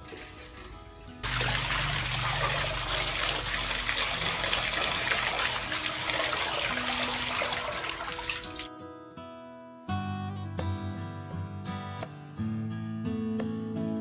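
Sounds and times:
tap water running into colander: 0:00.0 - 0:08.7
water splashing into basin: 0:00.0 - 0:08.7.

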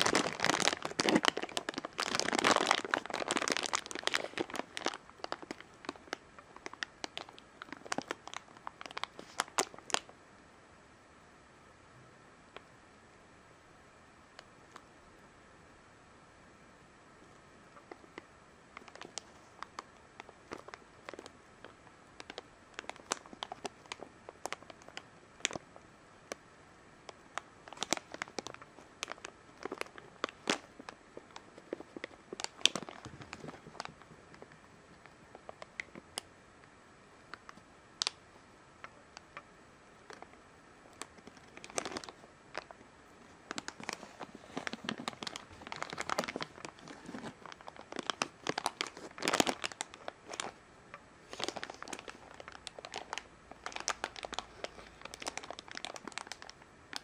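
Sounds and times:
plastic bag crinkling: 0:00.0 - 0:10.1, 0:17.8 - 0:25.6, 0:27.1 - 0:36.3, 0:40.9 - 0:50.6, 0:51.2 - 0:57.0.

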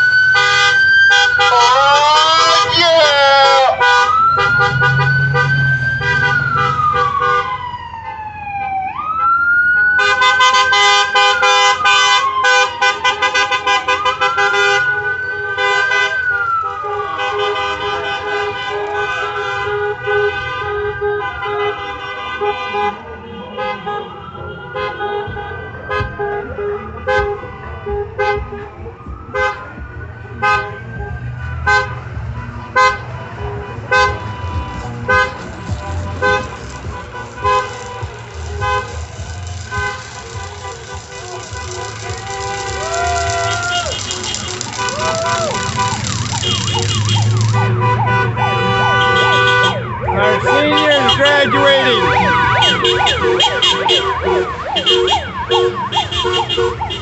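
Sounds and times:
car horns honking: 0:00.0 - 0:08.4, 0:09.0 - 0:29.7, 0:30.3 - 0:57.0
siren wailing: 0:00.0 - 0:13.0, 0:35.1 - 0:57.0
low rumble of vehicles: 0:00.0 - 0:57.0.

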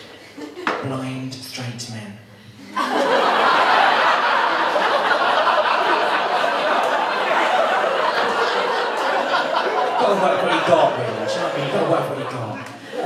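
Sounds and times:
audience laughing: 0:02.6 - 0:13.0.

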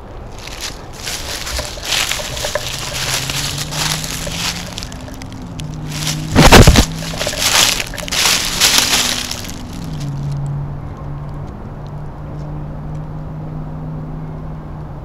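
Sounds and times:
dry leaves crunching and rustling: 0:00.0 - 0:10.4.

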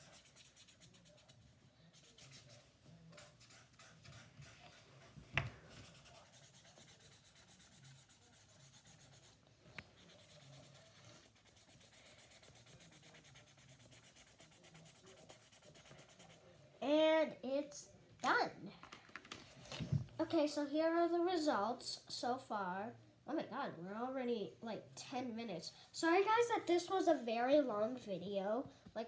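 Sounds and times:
marker scratching on paper: 0:00.0 - 0:16.5.

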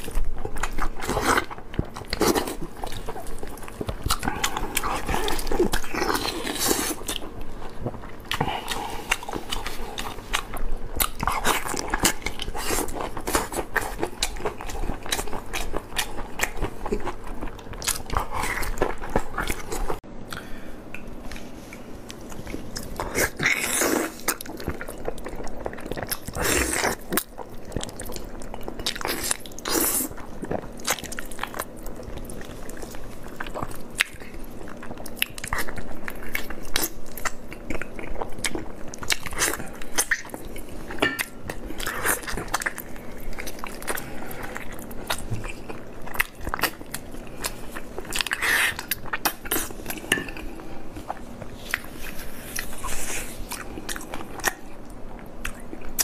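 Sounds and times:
wet biting and chewing: 0:22.1 - 0:56.0.

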